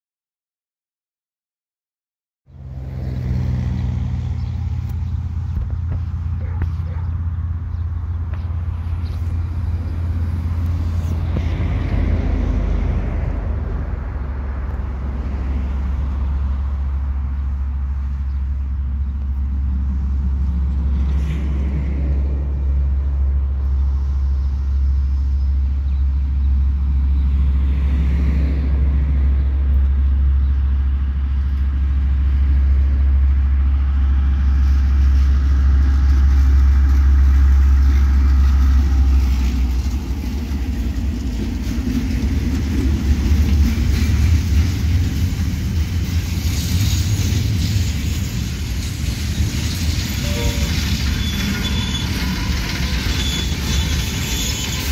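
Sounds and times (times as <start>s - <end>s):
diesel locomotive engines droning: 2.5s - 54.9s
freight wagons rumbling: 2.5s - 54.9s
train wheel clatter: 34.5s - 54.9s.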